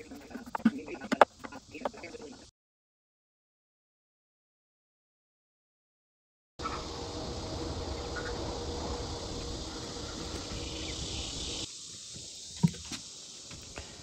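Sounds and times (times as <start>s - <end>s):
low background hum: 6.6s - 11.7s
insect buzz: 6.6s - 14.0s.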